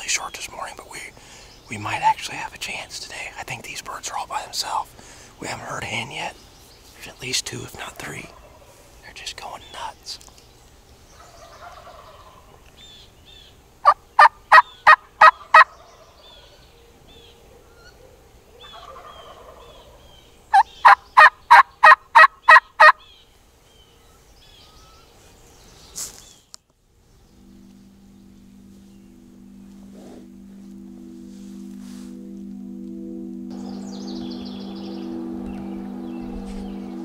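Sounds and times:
songbird chirps: 0:00.0 - 0:37.0
turkey yelps: 0:13.8 - 0:15.9, 0:18.6 - 0:19.9, 0:20.5 - 0:23.1
distant turkey gobbles: 0:13.8 - 0:23.2.

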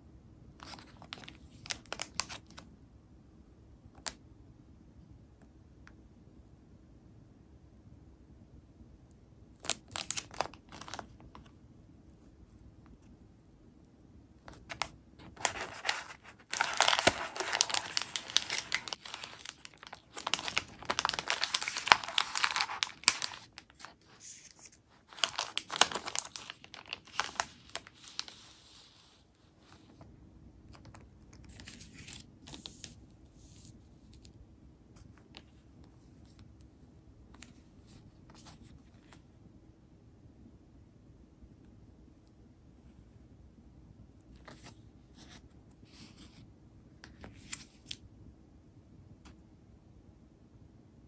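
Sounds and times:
plastic bag crinkling and tearing: 0:09.6 - 0:11.3, 0:14.5 - 0:28.5.

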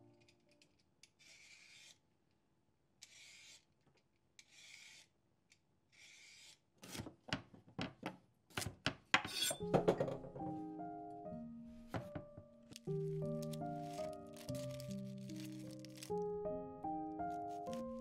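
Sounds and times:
rasping scrape strokes: 0:01.2 - 0:02.0, 0:04.4 - 0:05.1.

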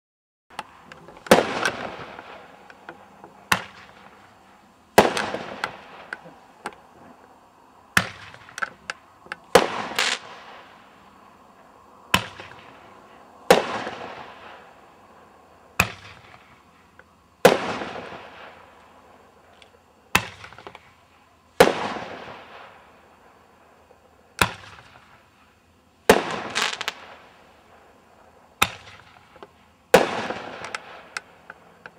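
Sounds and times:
firework launch crack: 0:00.5 - 0:06.8, 0:08.0 - 0:11.0, 0:12.1 - 0:12.8, 0:13.5 - 0:14.7, 0:15.8 - 0:16.6, 0:17.4 - 0:18.8, 0:20.1 - 0:21.0, 0:21.6 - 0:23.0, 0:24.4 - 0:25.3, 0:26.0 - 0:27.8, 0:28.6 - 0:31.6
firework aerial burst: 0:01.3 - 0:02.7, 0:05.0 - 0:06.1, 0:09.5 - 0:10.9, 0:13.5 - 0:14.7, 0:26.1 - 0:27.3.

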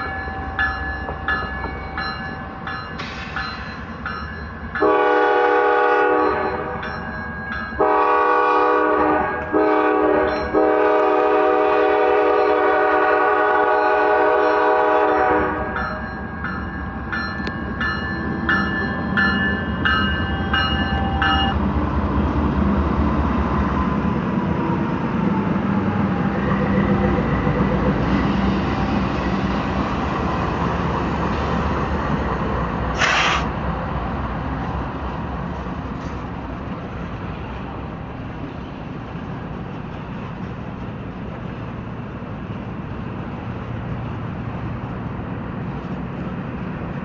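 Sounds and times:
bell ringing: 0:00.0 - 0:04.8, 0:06.2 - 0:07.8, 0:10.2 - 0:10.6, 0:15.7 - 0:21.6
diesel locomotive engines: 0:00.0 - 0:47.0
loud air hiss: 0:03.0 - 0:03.7, 0:32.9 - 0:33.6.

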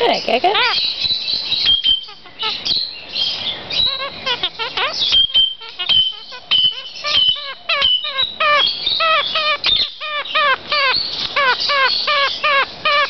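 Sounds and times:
parakeet chattering: 0:00.0 - 0:01.0, 0:01.6 - 0:13.0.

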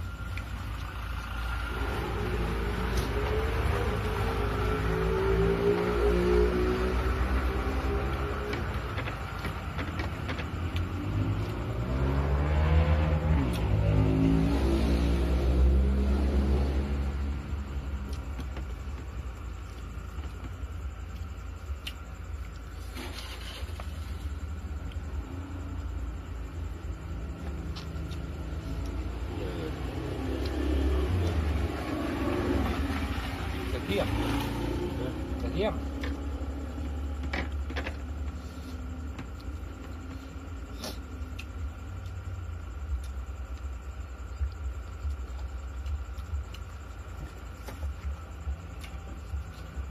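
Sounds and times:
person chewing food: 0:00.0 - 0:04.2, 0:17.4 - 0:22.7, 0:26.4 - 0:31.5, 0:38.0 - 0:42.3, 0:42.9 - 0:49.9
steady low hum: 0:00.0 - 0:34.0, 0:34.6 - 0:49.9
low steady rumble: 0:00.0 - 0:34.1, 0:34.7 - 0:49.9
vehicle engine droning: 0:00.0 - 0:49.9.

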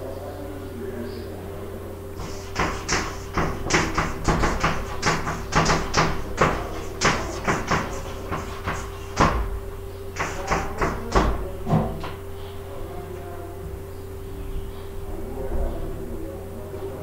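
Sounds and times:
steady low hum: 0:00.0 - 0:17.0
chalk tapping on blackboard: 0:02.2 - 0:09.5, 0:10.1 - 0:12.2.

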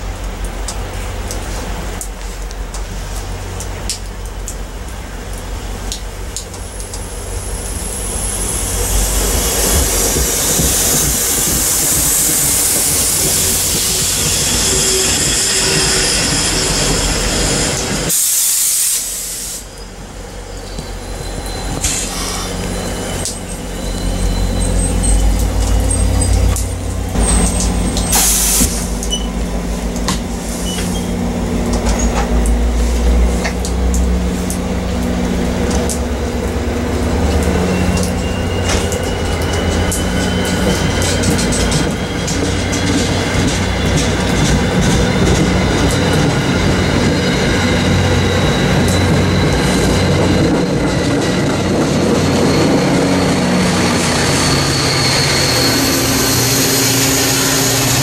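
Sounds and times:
passenger train running: 0:00.0 - 0:58.0
faint high squeal: 0:12.8 - 0:18.1, 0:19.6 - 0:26.5, 0:37.5 - 0:44.3, 0:52.0 - 0:58.0.

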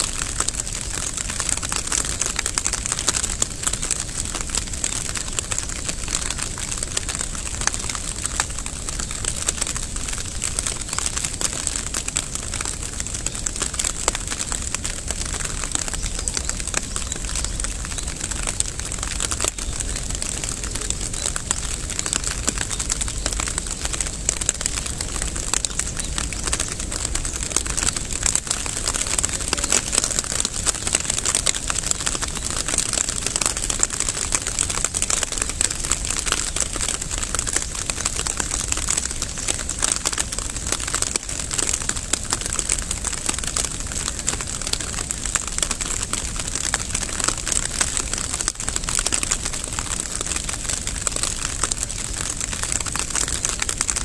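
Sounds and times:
rain patter with high hiss: 0:00.0 - 0:54.0.

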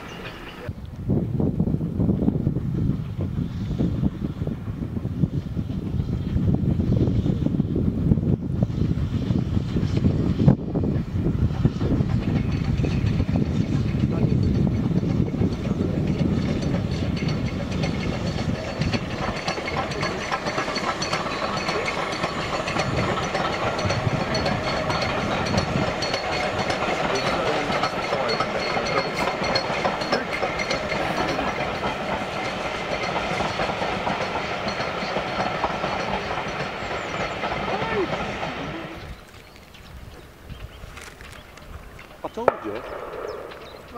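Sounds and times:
train wheels clattering on rails: 0:01.4 - 0:43.9
steam hiss: 0:03.0 - 0:13.8, 0:15.8 - 0:39.3.

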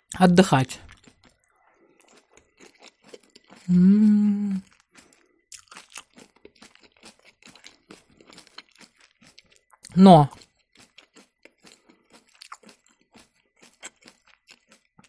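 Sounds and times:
crisp chewing crunches: 0:00.8 - 0:03.7, 0:04.4 - 0:15.0
woman humming: 0:03.7 - 0:04.6.

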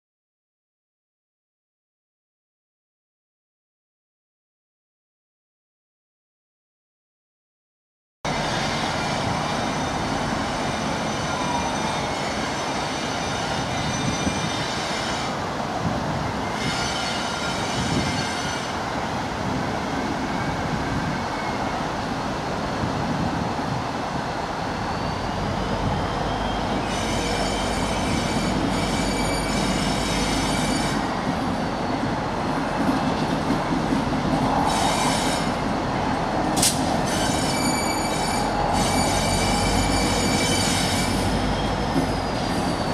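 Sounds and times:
diesel locomotive engine: 0:08.3 - 0:42.9
train rumbling: 0:08.3 - 0:42.9
train wheels squealing: 0:08.4 - 0:15.4, 0:16.4 - 0:18.8, 0:20.3 - 0:21.9, 0:24.5 - 0:32.6, 0:34.5 - 0:35.7, 0:36.7 - 0:42.9.

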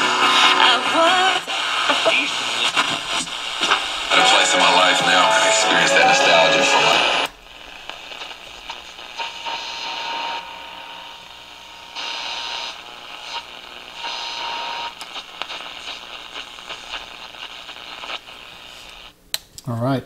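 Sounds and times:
radio static hiss: 0:00.0 - 0:19.2
clicks and crackles: 0:14.9 - 0:17.1.

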